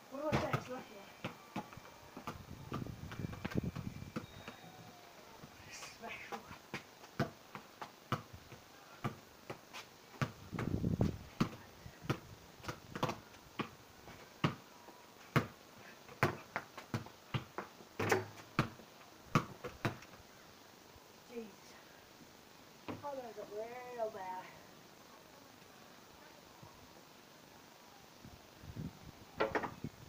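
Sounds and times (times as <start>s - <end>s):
football bouncing on paving: 0.3s - 4.7s, 6.7s - 8.3s, 10.2s - 13.8s, 16.2s - 20.0s.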